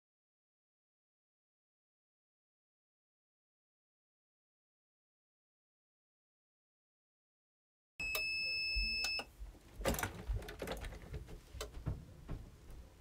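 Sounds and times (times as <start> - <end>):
high electronic timer beep: 8.0 - 9.3.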